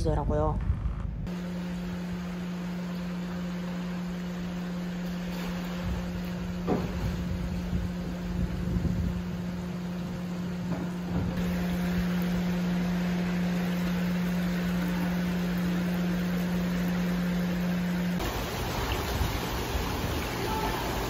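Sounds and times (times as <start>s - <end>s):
low machine hum: 0.0s - 21.0s
water splashing on concrete: 11.4s - 21.0s.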